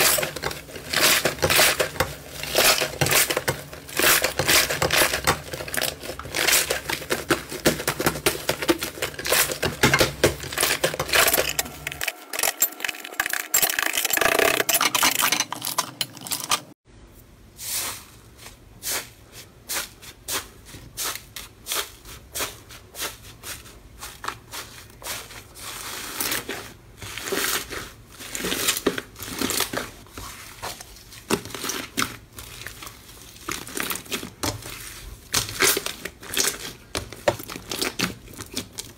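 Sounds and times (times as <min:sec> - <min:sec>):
slime squishing and crackling: 0:00.0 - 0:15.0, 0:24.0 - 0:38.9.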